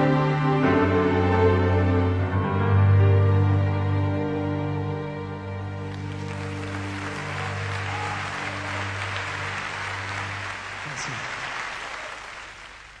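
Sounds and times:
audience applauding: 5.8s - 13.0s.

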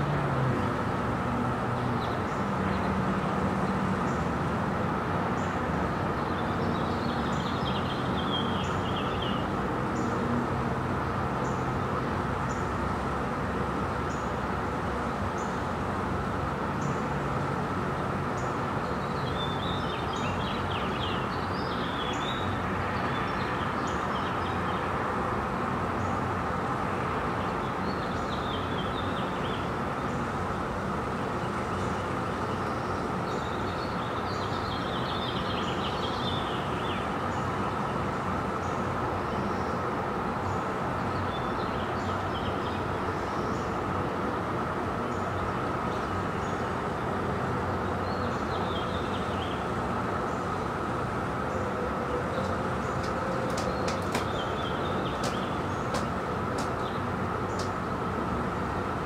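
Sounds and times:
distant traffic drone: 0.0s - 59.0s
small birds chirping: 5.3s - 10.2s, 18.3s - 24.9s, 31.3s - 44.0s, 45.0s - 50.7s, 51.5s - 58.0s.

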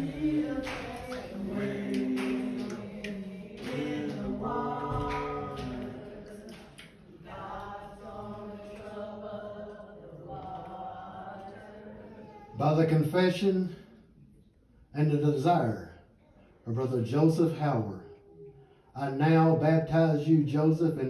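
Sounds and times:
group singing a hymn: 0.0s - 12.5s.

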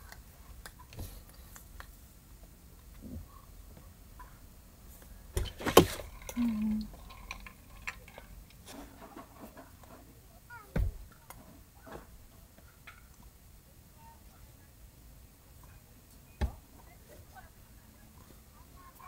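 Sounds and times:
clothing rustle: 5.4s - 9.7s.

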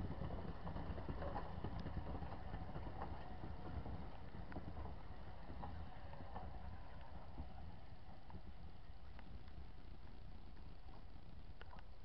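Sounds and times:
wheels clicking over rail joints: 0.0s - 8.4s
train wheels rumbling on track: 0.0s - 8.6s.

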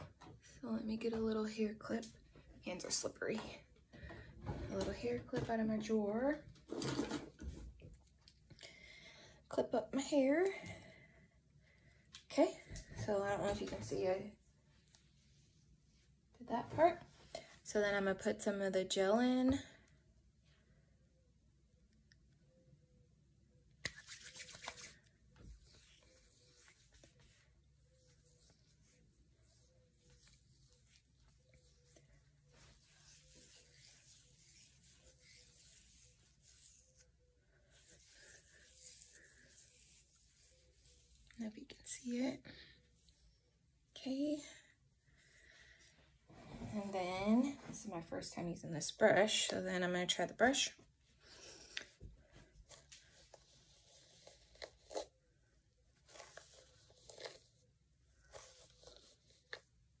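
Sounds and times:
fingers rustling through wet hair: 23.8s - 42.2s.

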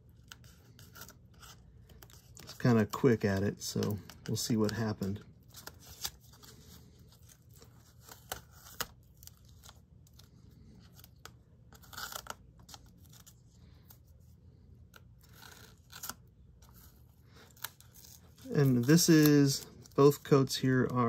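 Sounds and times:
masking tape peeling off card: 0.1s - 13.4s, 14.9s - 21.0s
tape ripping: 10.9s - 13.4s, 15.2s - 21.0s.

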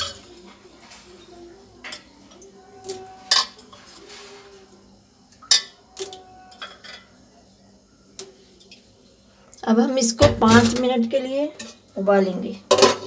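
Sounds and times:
steel cookware clinking: 0.0s - 0.5s, 1.8s - 4.0s, 5.4s - 7.2s, 10.4s - 11.9s, 12.7s - 13.0s.

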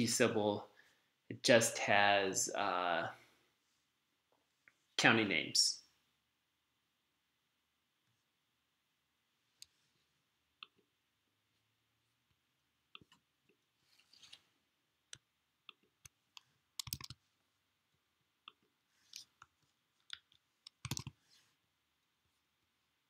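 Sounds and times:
keyboard keystrokes: 16.8s - 17.2s, 20.7s - 21.1s.

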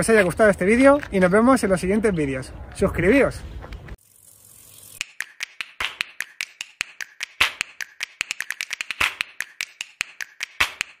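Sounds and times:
rapid sharp clicks: 5.0s - 11.0s.

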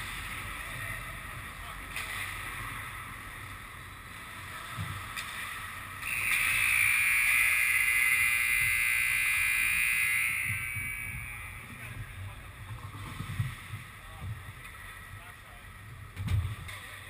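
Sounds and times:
steady hiss: 5.3s - 12.0s
loud steady hiss: 5.5s - 12.0s.

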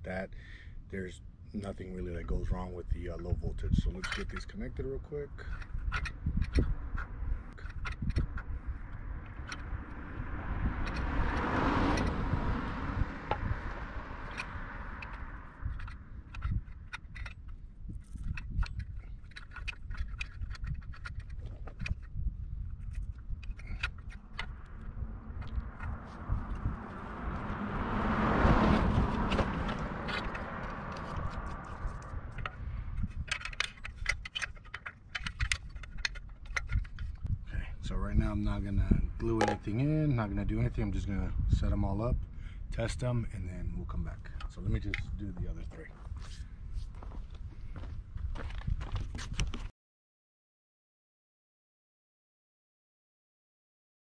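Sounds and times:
low steady rumble: 0.0s - 49.0s
clicks and rattles of handling parts: 3.8s - 4.7s, 5.4s - 10.0s, 13.3s - 26.7s, 29.1s - 37.4s, 39.3s - 39.7s, 44.2s - 45.2s
car passing by: 8.8s - 16.4s, 24.4s - 33.0s.

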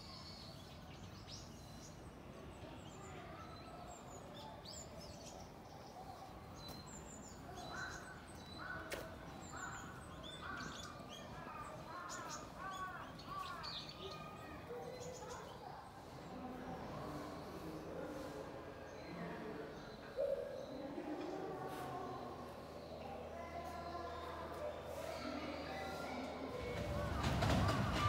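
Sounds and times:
birds chirping and calling: 3.5s - 15.6s.

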